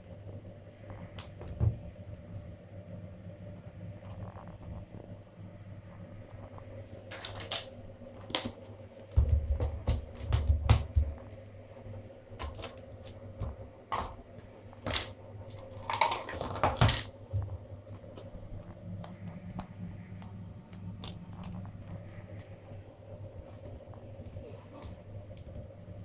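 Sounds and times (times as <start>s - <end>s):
faint steady hum: 0.0s - 26.0s
plastic cups clicking and snapping: 7.1s - 8.6s, 14.8s - 17.1s.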